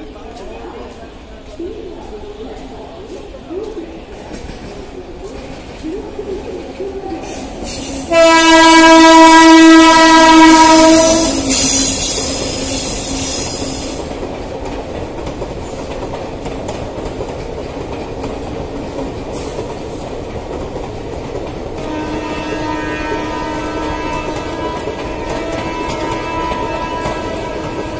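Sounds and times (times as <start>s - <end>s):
train wheels on rails: 0.0s - 27.9s
locomotive horn blast: 8.0s - 12.0s, 21.8s - 27.9s.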